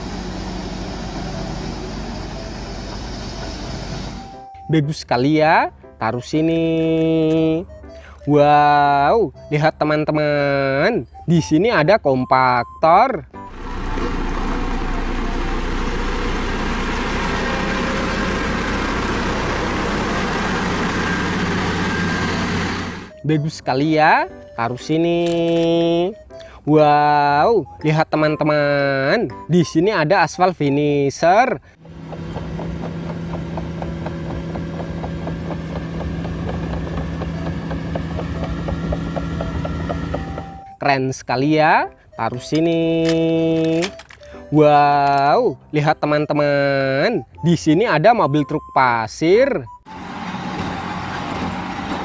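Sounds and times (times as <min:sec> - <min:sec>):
road roller diesel engine: 0:00.0 - 0:04.7, 0:13.4 - 0:23.2, 0:31.7 - 0:40.8, 0:49.8 - 0:52.0
crawler tracks clicking: 0:31.9 - 0:40.7.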